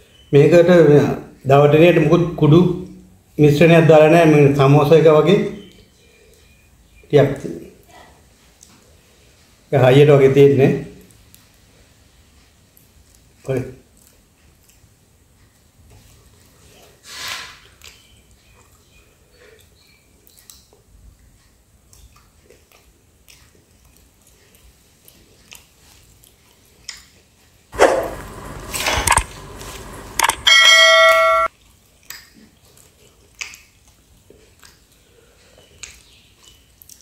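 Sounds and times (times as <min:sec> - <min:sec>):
chewing crisp pizza crust: 0:10.9 - 0:30.1, 0:31.5 - 0:37.0
sudden loud burst of noise: 0:27.8 - 0:31.5
bell-like ringing tone: 0:30.3 - 0:31.5.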